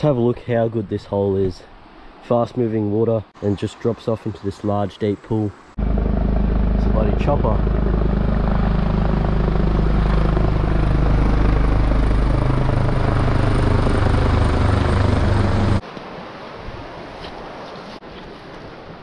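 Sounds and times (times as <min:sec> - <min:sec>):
helicopter rotor beating: 0:05.8 - 0:15.8.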